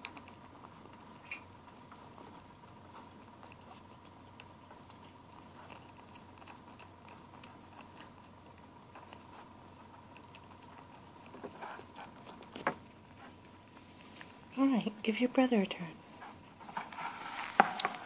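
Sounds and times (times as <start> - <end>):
kitten chewing and lapping: 0.0 - 15.4.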